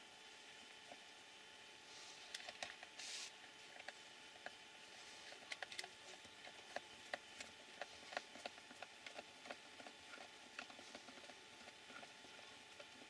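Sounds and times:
small plastic parts clicking: 5.3s - 12.0s.

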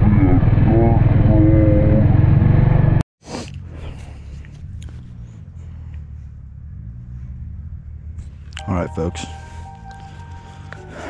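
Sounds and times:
dirt bike engine running: 0.0s - 3.0s.

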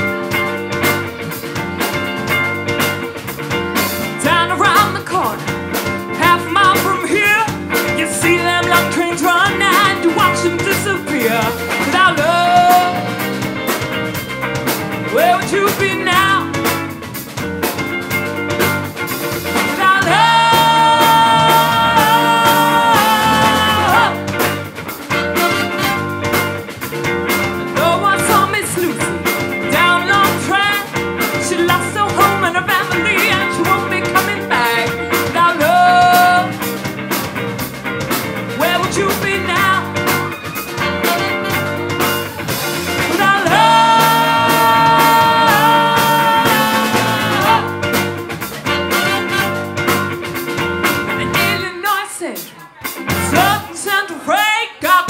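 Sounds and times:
live rock band playing: 0.0s - 55.0s
woman singing: 4.2s - 5.5s, 6.2s - 13.3s, 15.1s - 16.6s, 19.6s - 24.3s, 27.8s - 36.6s, 38.6s - 40.0s, 43.0s - 47.8s, 51.2s - 55.0s.

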